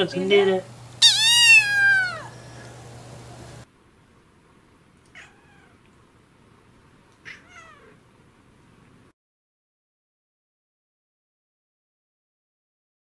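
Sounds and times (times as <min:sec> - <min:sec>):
cat meowing: 0:01.0 - 0:02.4, 0:05.1 - 0:05.8, 0:07.2 - 0:08.0.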